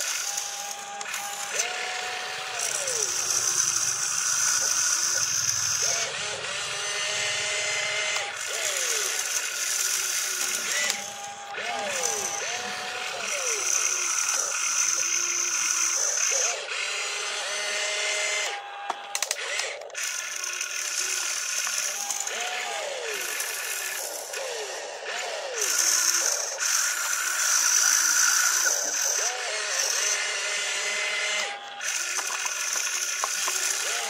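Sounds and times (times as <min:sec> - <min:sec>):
electric gear motors whining: 0:00.0 - 0:34.0
sharp clicks and rattles: 0:31.8 - 0:34.0.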